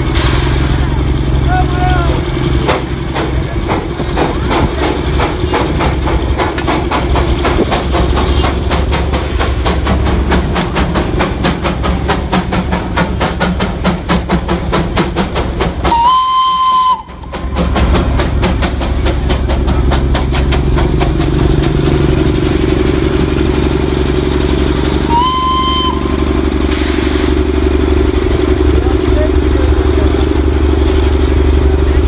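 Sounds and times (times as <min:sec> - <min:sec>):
steam locomotive chuffing: 0:00.0 - 0:32.0
steam whistle blast: 0:15.9 - 0:17.2, 0:25.1 - 0:26.2.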